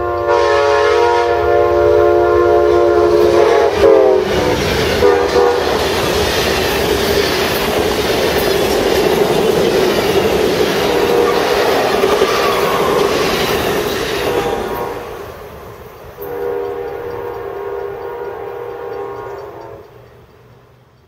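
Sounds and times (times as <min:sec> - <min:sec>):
distant locomotive horn chord: 0:00.0 - 0:06.0, 0:10.8 - 0:13.0, 0:14.2 - 0:15.3, 0:16.2 - 0:20.0
train wheels clattering on rails: 0:03.0 - 0:21.0.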